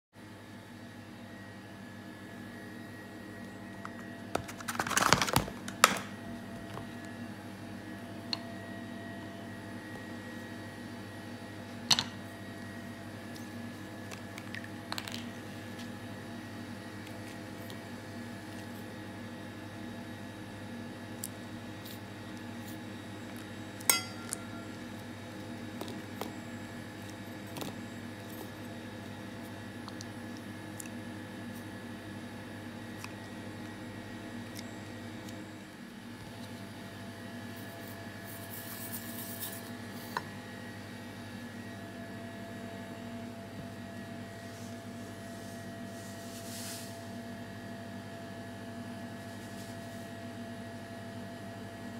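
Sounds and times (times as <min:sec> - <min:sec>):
faint steady hum: 0:00.2 - 0:51.9
tube clinking on metal bowl: 0:23.9 - 0:24.7.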